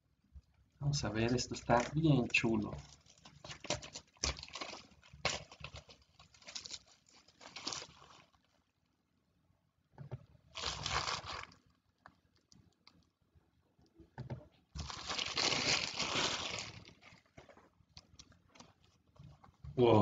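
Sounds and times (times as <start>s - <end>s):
plastic shrink wrap crinkling: 1.2s - 8.7s, 10.5s - 11.8s, 14.8s - 19.5s.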